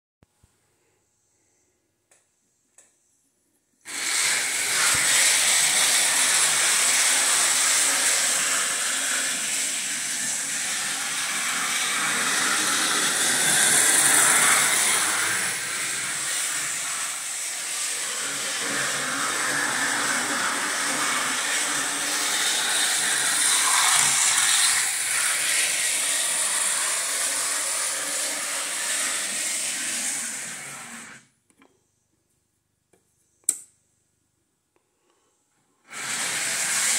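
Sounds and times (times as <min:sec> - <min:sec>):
model train running on track: 0:05.0 - 0:15.5.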